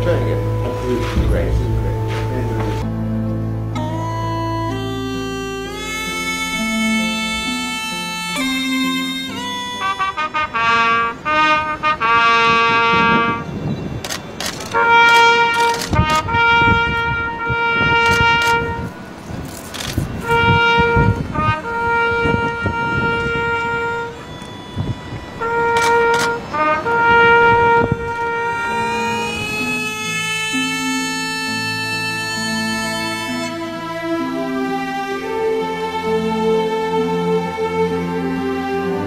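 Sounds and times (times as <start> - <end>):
wind instrument melody: 0.0 - 39.0
percussion hits and low thuds: 0.8 - 2.9.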